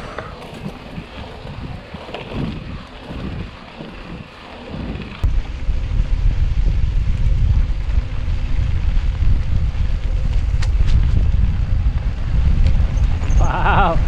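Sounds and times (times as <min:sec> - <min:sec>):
bike rattle: 0:00.0 - 0:14.0
bike tyres on dirt: 0:00.0 - 0:14.0
low wind rumble: 0:00.0 - 0:14.0
wind on microphone: 0:00.0 - 0:14.0.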